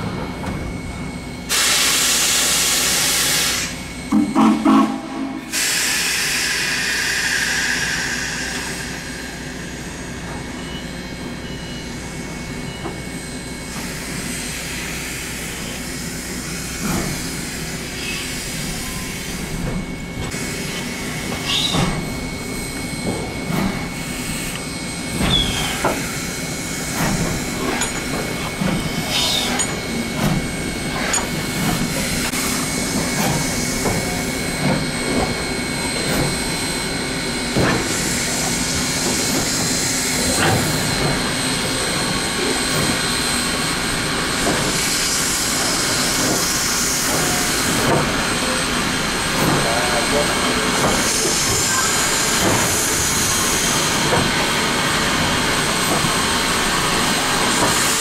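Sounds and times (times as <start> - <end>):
wheels rumbling on rail: 0.0 - 58.0
steam hissing: 1.5 - 3.8, 5.4 - 10.6, 25.1 - 35.6, 36.2 - 58.0
wheel squeals: 21.4 - 21.9, 25.3 - 25.8.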